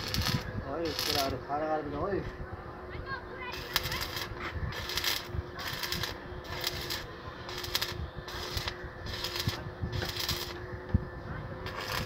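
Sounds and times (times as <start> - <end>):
welding arc crackling: 0.0 - 1.4, 3.5 - 10.6, 11.6 - 12.0.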